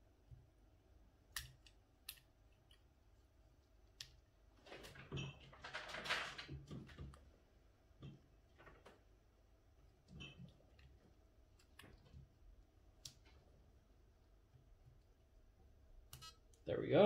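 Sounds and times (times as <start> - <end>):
rustling: 4.5 - 7.4.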